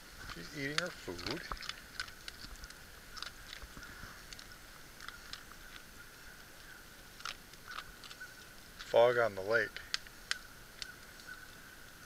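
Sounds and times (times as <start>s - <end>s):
dog chewing and crunching food: 0.2s - 5.9s, 6.6s - 9.0s.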